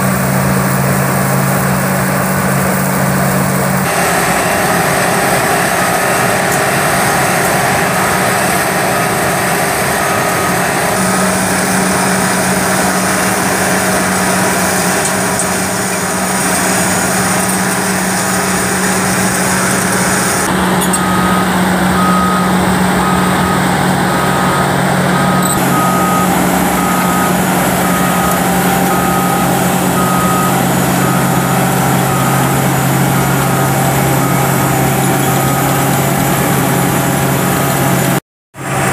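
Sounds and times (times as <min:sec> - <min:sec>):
diesel engine running under load: 0:00.0 - 0:38.9
backup alarm beeping: 0:03.8 - 0:13.4, 0:18.3 - 0:38.0.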